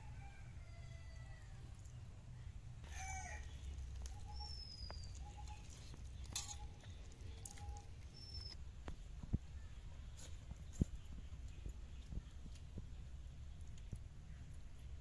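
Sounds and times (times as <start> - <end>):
high bird chirps: 4.0 - 8.6.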